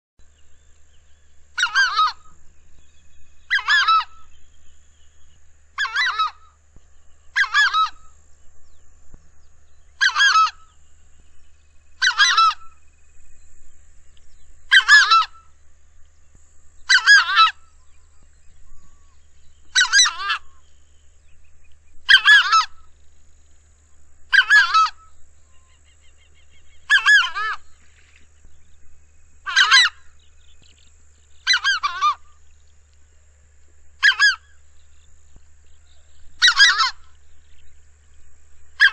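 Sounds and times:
bird calling loudly: 0:01.5 - 0:02.4, 0:03.2 - 0:04.7, 0:05.7 - 0:06.6, 0:07.2 - 0:08.2, 0:09.8 - 0:11.3, 0:12.0 - 0:13.0, 0:14.4 - 0:15.6, 0:16.8 - 0:20.8, 0:22.0 - 0:23.0, 0:24.3 - 0:28.3, 0:29.4 - 0:30.8, 0:31.4 - 0:32.4, 0:34.0 - 0:34.6, 0:36.0 - 0:37.2.

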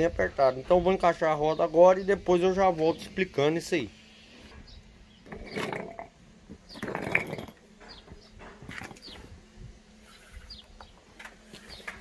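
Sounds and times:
metallic clatter of parts: 0:05.2 - 0:09.2.

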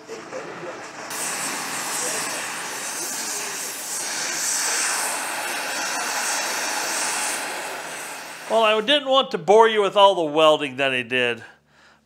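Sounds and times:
welding arc hissing: 0:00.7 - 0:08.9.

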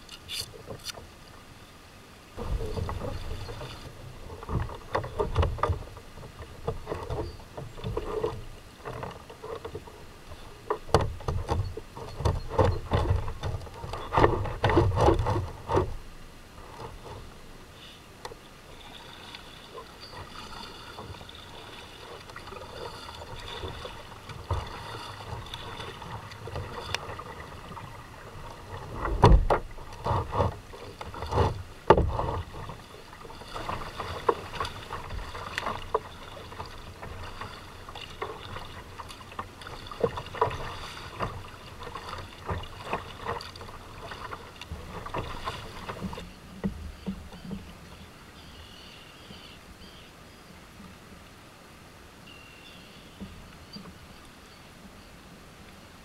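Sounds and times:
paddle stroke splashes: 0:00.0 - 0:50.0
water moving at the hull: 0:00.0 - 0:56.0
knocks and thumps: 0:29.0 - 0:32.7.

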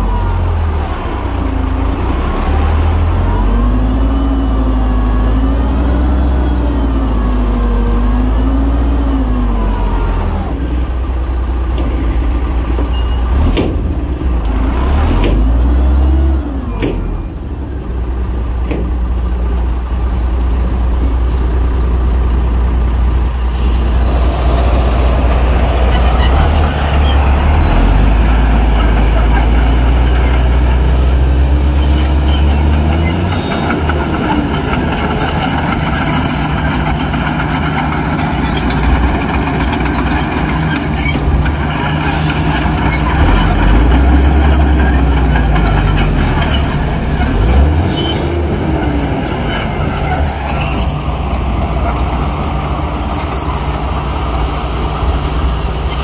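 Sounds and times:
heavy diesel machinery engine: 0:00.0 - 0:56.0
metallic squeaks and clinks: 0:24.0 - 0:34.7, 0:35.6 - 0:56.0.

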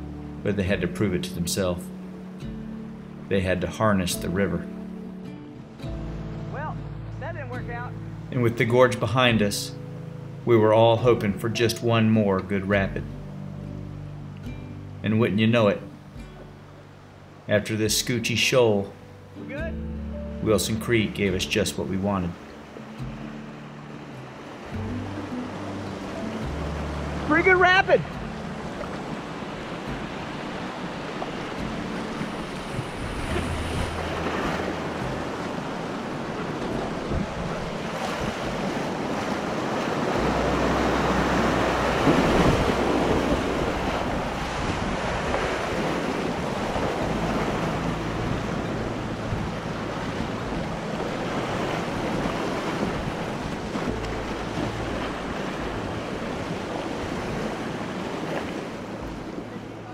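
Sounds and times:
whitewater rushing and splashing: 0:00.0 - 0:59.9
wind buffeting the microphone: 0:29.1 - 0:57.9.

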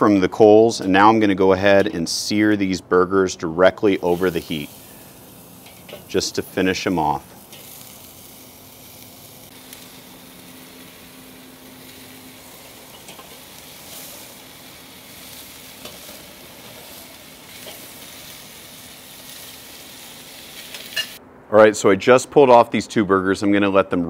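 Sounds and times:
burgers sizzling on grill: 0:03.8 - 0:21.2.

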